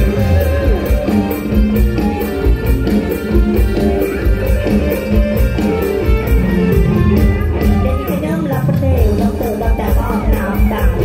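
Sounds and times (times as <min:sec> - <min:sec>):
loud live band music: 0:00.0 - 0:11.0.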